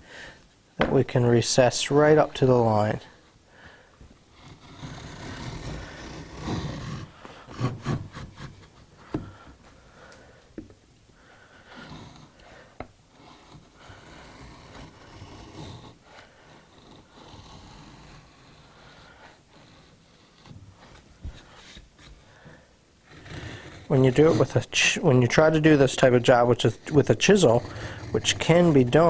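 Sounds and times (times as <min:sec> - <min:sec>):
plane blade shaving wood: 0:04.3 - 0:09.4, 0:11.4 - 0:29.0.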